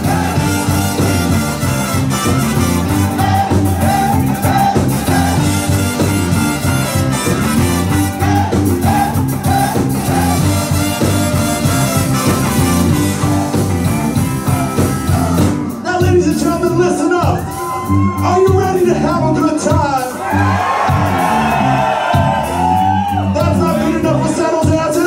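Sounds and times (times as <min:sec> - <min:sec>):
trumpets and saxophone: 0:00.0 - 0:15.6
ska band playing: 0:00.0 - 0:25.0.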